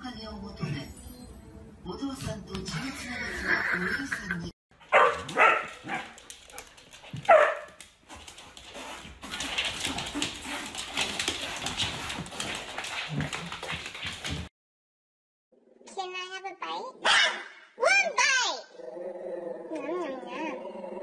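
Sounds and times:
dog barking: 4.8 - 6.2, 7.2 - 7.8, 17.0 - 17.6
dogs scuffling and rustling: 4.9 - 14.5.

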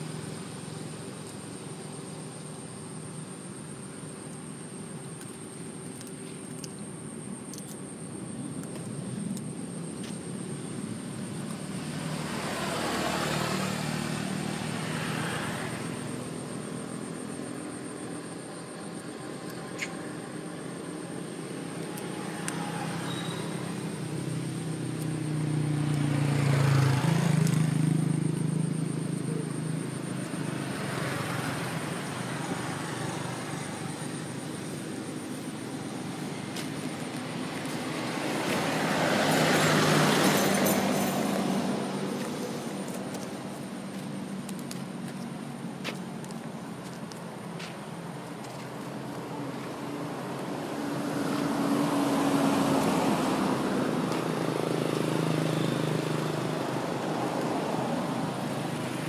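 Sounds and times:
vehicles passing: 0.0 - 59.0.

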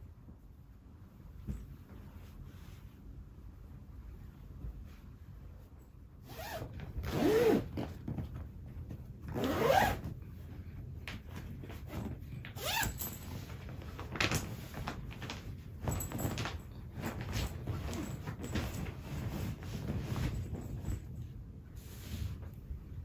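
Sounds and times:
zipper being pulled: 6.2 - 7.9, 9.3 - 10.1, 12.6 - 13.2.

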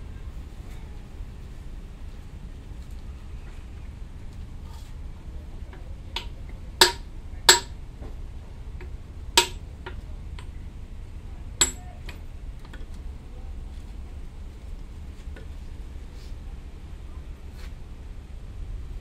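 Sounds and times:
hammer clanking on steel: 6.2 - 7.8, 9.4 - 10.0, 11.6 - 12.2.

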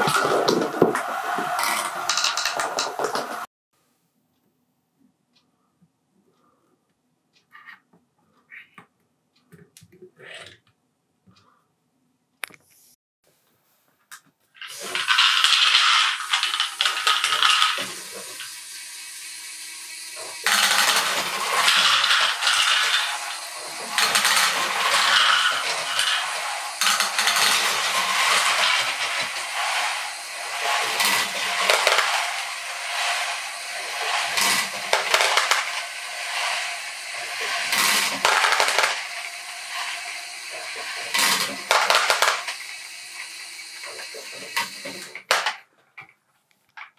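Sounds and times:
plastic balls clattering: 0.0 - 3.5, 14.6 - 18.6, 20.2 - 42.8, 43.8 - 45.7
small electric motor: 14.8 - 45.2.

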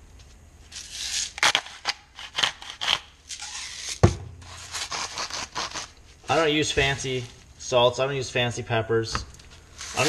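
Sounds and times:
dull thump: 4.0 - 4.5.

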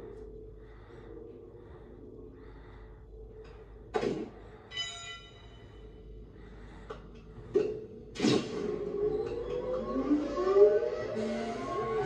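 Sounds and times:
low machine hum: 0.0 - 12.0
ringing metallic tone: 4.7 - 5.9.

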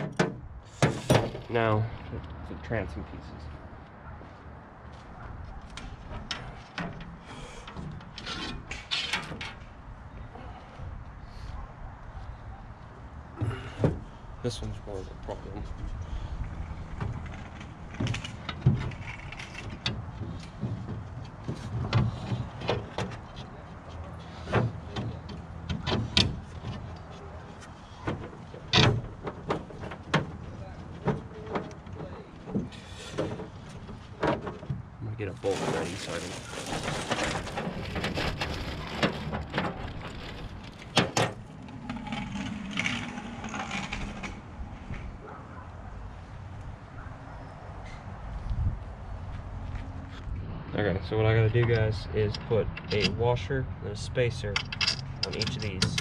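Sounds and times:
plastic bag rustling: 35.3 - 41.0
bolts and washers clinking: 51.6 - 53.5, 54.3 - 56.0.

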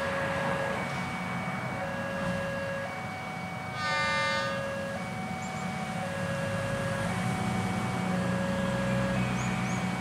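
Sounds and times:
low rumble of train: 0.0 - 10.0.

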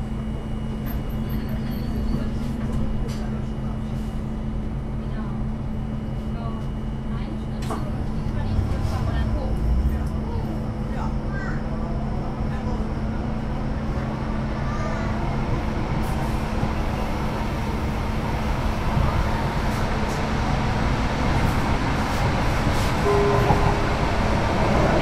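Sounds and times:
tram rumbling on rails: 0.0 - 25.0
brief higher tone: 23.0 - 23.8.

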